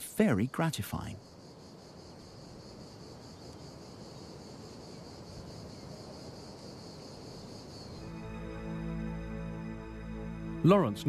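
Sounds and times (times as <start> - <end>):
insects chirring: 0.0 - 11.0
soft sustained music chords: 7.8 - 11.0.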